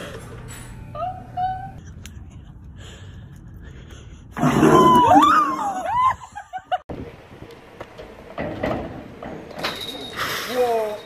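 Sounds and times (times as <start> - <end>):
woman screaming: 4.6 - 6.2.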